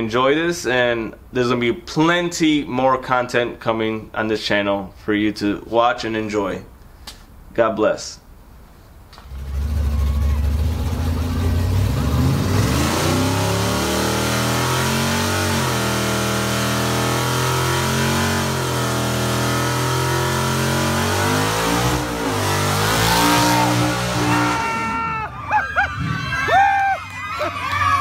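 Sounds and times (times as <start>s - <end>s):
car engine revving hard: 9.3s - 24.9s
people shouting and cheering: 9.8s - 11.7s, 22.3s - 28.0s.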